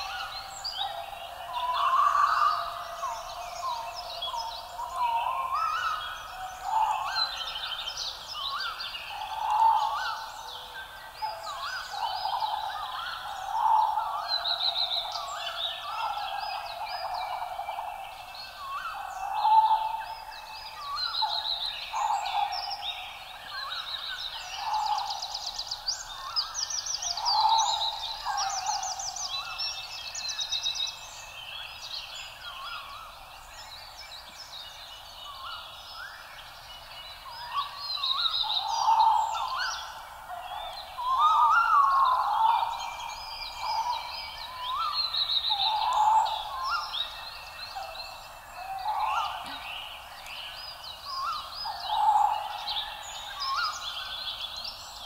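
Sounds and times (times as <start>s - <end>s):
birds calling: 37.3s - 55.0s.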